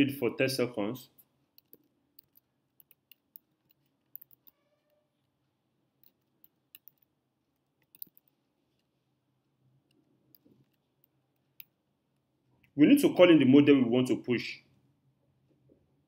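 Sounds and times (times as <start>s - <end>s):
computer keyboard typing: 6.0s - 7.0s, 7.8s - 8.3s.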